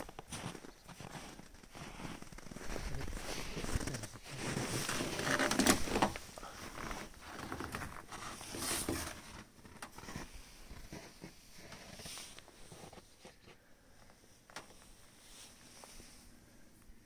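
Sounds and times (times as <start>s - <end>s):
footsteps crunching in snow: 0.0s - 13.4s.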